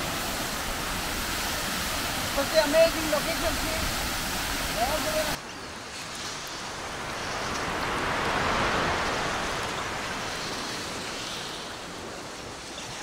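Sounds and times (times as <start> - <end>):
falling water rushing: 0.0 - 5.4.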